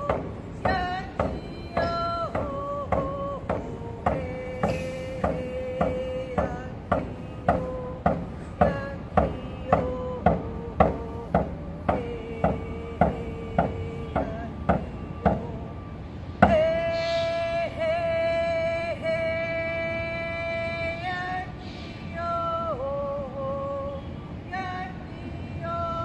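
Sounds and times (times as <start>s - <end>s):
hand drum beating: 0.0s - 15.5s
woman singing: 0.0s - 26.0s.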